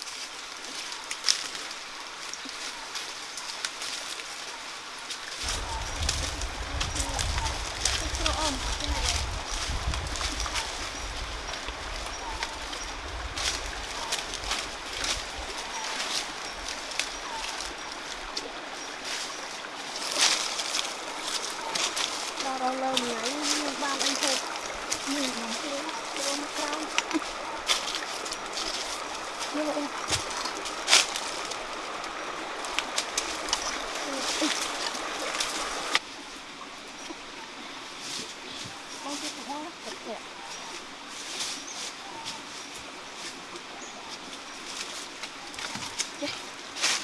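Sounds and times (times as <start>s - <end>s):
water splashing: 0.0s - 36.1s
steady background hiss: 0.0s - 47.0s
stream rushing: 0.0s - 47.0s
dove cooing: 20.1s - 36.0s.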